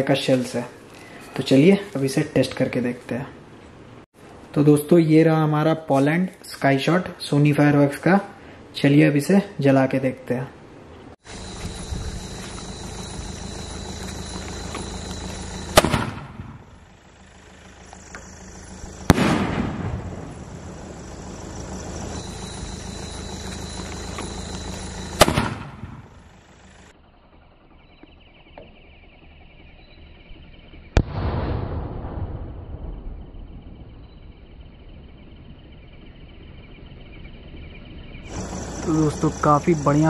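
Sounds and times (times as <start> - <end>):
firework shells banging: 13.8 - 16.7, 18.9 - 20.9, 21.8 - 26.1.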